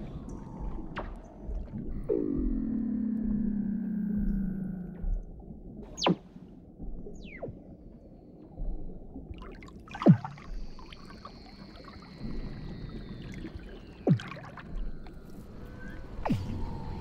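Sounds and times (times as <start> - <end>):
low water hiss: 10.0 - 17.0.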